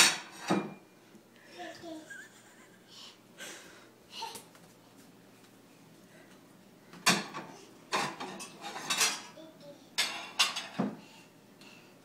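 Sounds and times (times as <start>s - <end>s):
dishes and cutlery clattering: 0.0s - 0.8s, 7.0s - 9.4s, 10.0s - 11.0s.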